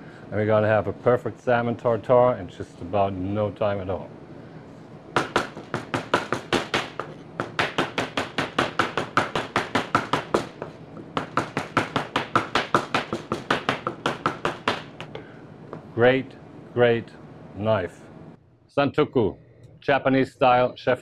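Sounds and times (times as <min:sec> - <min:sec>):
cleaver chopping on cutting board: 0:05.2 - 0:15.2.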